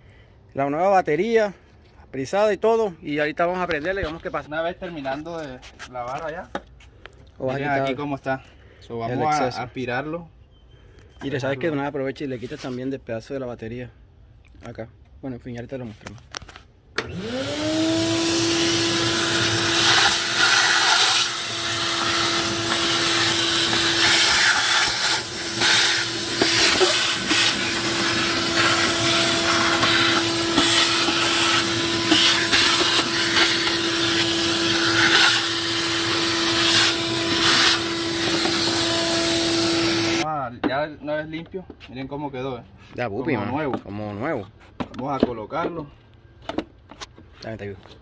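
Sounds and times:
vacuum cleaner running: 17.0 - 40.2.

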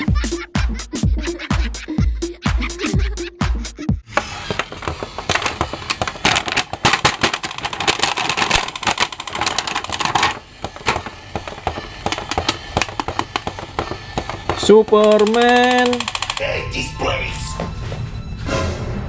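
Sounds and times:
plastic packaging crinkling: 4.4 - 15.2.

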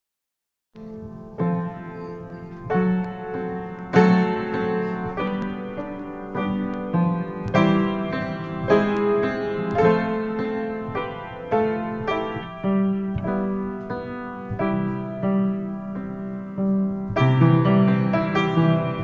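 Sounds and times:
piano slow sustained chords: 0.8 - 19.0.

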